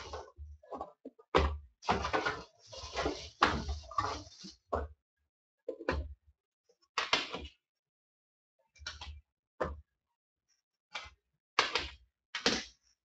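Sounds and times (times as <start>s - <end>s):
cardboard scraping and rustling: 1.8s - 4.7s.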